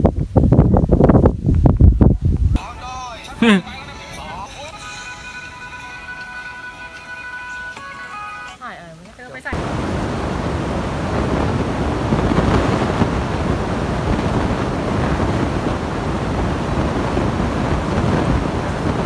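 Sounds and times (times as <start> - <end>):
wind buffeting microphone: 0.0 - 2.6, 9.5 - 19.0.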